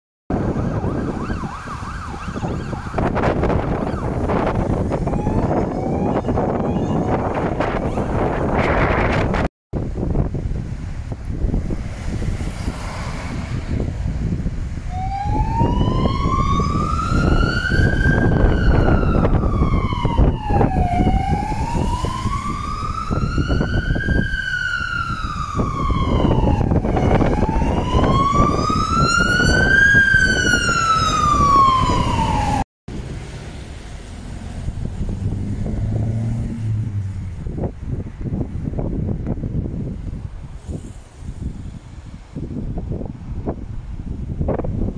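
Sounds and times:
fire engine siren wailing: 0.3s - 9.5s, 14.8s - 32.6s
traffic rumble: 0.3s - 44.9s.

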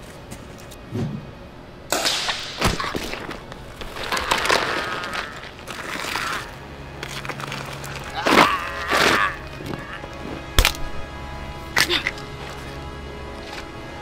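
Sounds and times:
man crying out in pain: 8.1s - 10.1s.

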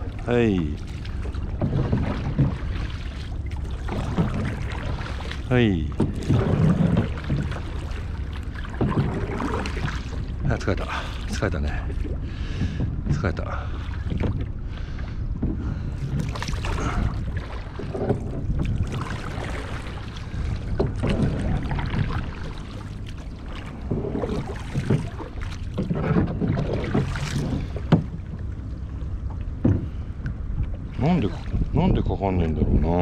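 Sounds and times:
paddles dipping through water: 0.0s - 32.8s
water lapping at hull: 0.0s - 33.0s
wind rumble on microphone: 0.0s - 33.0s.

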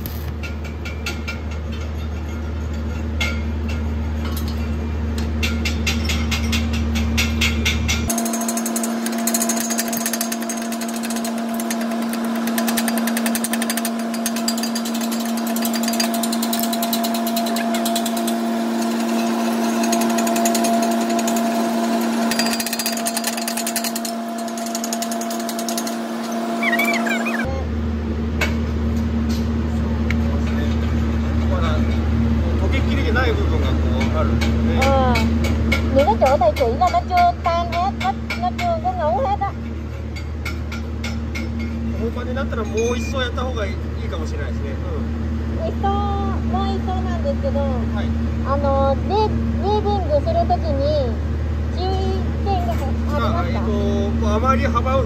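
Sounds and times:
wire brush scrubbing metal: 8.2s - 27.5s.

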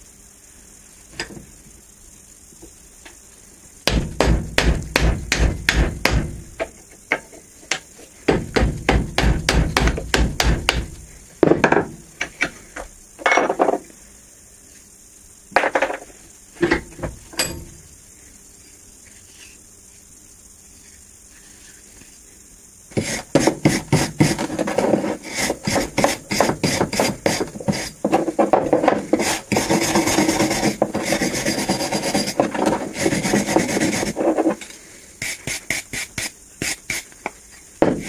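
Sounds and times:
hammer striking wood: 3.9s - 6.4s, 8.3s - 10.9s.

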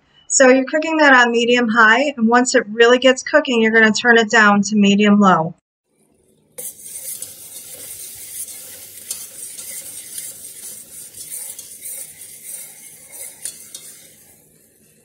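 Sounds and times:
butter sizzling in saucepan: 5.9s - 15.0s
utensil scraping pot: 6.0s - 15.0s.

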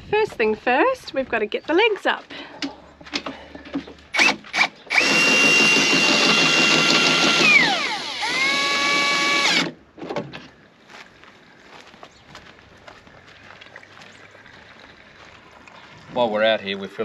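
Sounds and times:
cordless drill motor whining: 4.1s - 9.7s.

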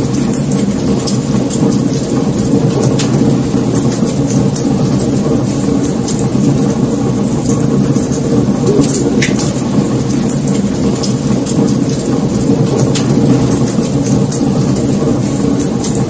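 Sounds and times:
low rumble of flames: 0.0s - 16.0s
logs crackling and popping: 0.1s - 16.0s.

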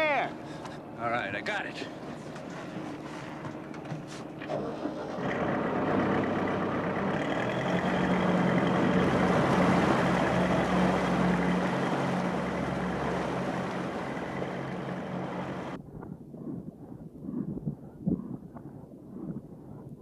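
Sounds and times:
churning water from wake: 0.0s - 15.8s
motorboat engine humming: 0.0s - 17.5s.

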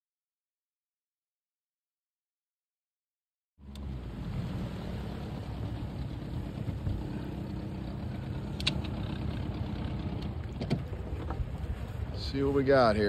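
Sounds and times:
boat motor humming: 3.6s - 13.0s
light knocks against boat: 10.1s - 12.0s.

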